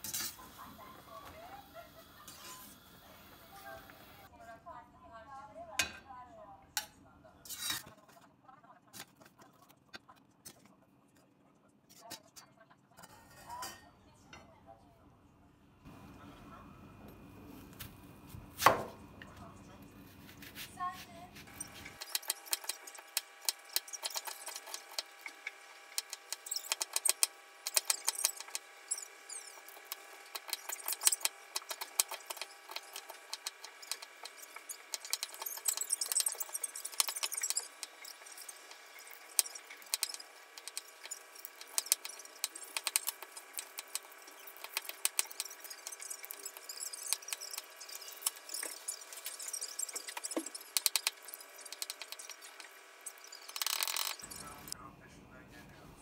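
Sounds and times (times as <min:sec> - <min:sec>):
faint hum: 0:14.1 - 0:56.0
small hard objects clicking: 0:21.9 - 0:54.8.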